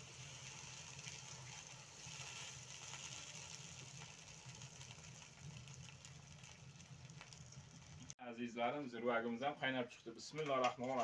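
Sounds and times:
water poured into hot pot: 0.0s - 8.1s
hissing and bubbling: 0.0s - 8.2s.

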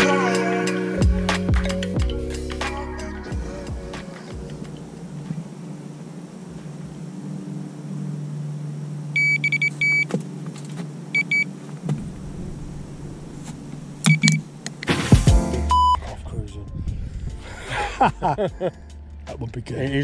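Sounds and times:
bite alarm beeping: 9.2s - 10.1s, 11.2s - 11.5s, 14.0s - 14.4s, 15.7s - 16.0s.

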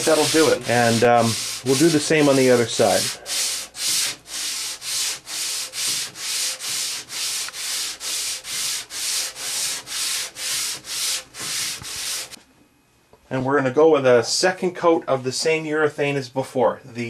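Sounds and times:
sandpaper rubbing on wood: 0.0s - 12.4s.

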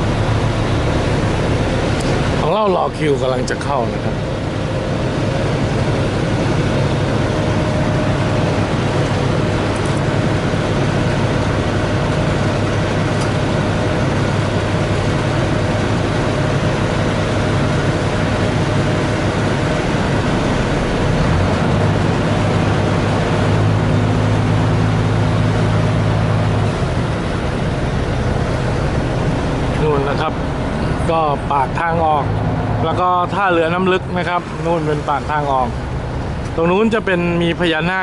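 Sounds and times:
ferry engine humming: 0.0s - 38.0s
water rushing: 0.0s - 38.0s.

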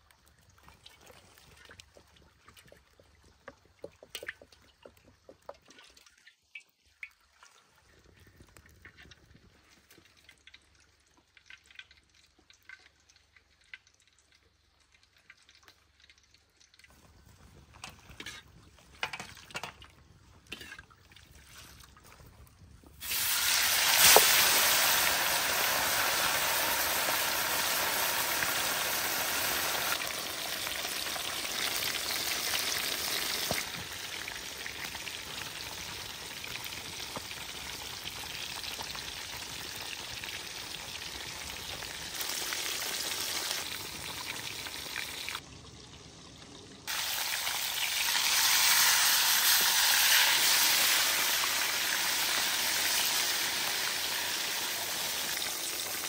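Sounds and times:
food sizzling in hot oil: 23.0s - 56.0s.

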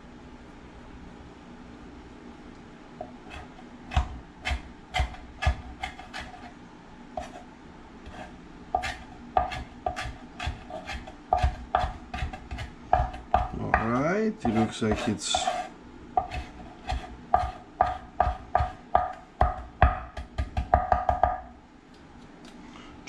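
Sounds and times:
knife chopping on wooden board: 3.0s - 6.5s, 7.2s - 7.4s, 8.1s - 21.5s.

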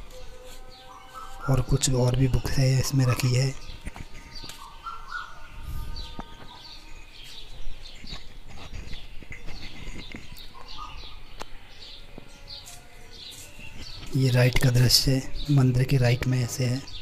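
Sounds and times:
small birds chirping: 0.0s - 17.0s.

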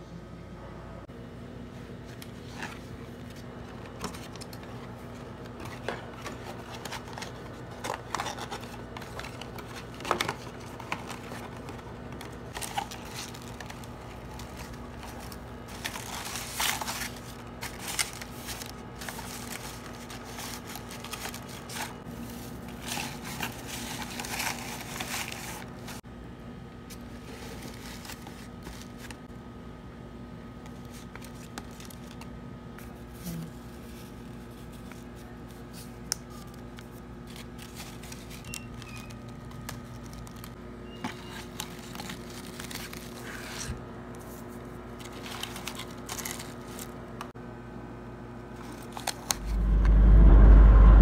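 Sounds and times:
shredded paper shuffled: 1.7s - 26.0s, 26.9s - 29.3s, 30.6s - 47.3s, 48.5s - 49.6s
paperboard box folded: 2.2s - 26.0s, 26.9s - 29.3s, 30.7s - 47.0s
tissue paper rustling: 2.3s - 26.0s, 26.9s - 29.3s, 32.9s - 40.6s, 41.2s - 47.0s.

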